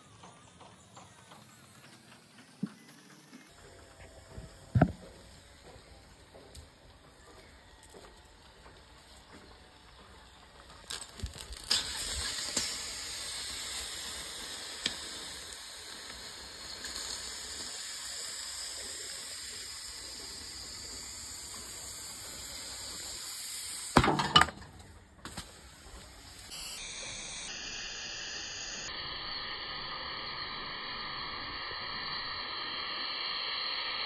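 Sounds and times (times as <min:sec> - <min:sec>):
battery cell venting hiss: 0:00.0 - 0:24.0, 0:24.8 - 0:34.0
crackling pops: 0:08.8 - 0:17.8, 0:24.8 - 0:26.7.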